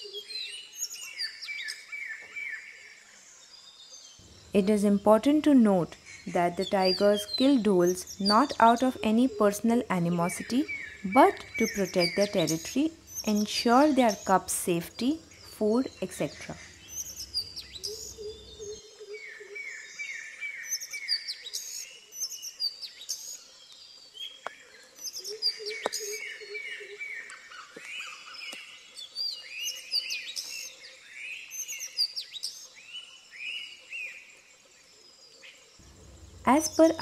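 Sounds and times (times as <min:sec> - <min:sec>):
birds chirping and whistling: 0:04.2 - 0:23.4.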